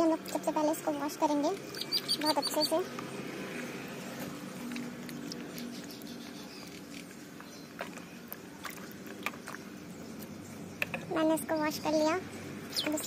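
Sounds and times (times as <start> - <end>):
water sloshing in a basin: 6.7 - 11.2
water drips and splashes: 7.4 - 10.3.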